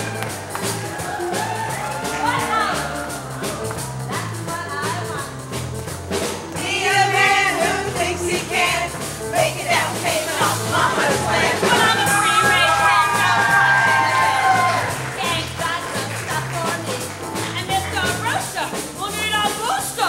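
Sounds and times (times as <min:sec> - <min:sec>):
upbeat song with bass and drums: 0:00.0 - 0:20.0
voices singing: 0:06.1 - 0:20.0.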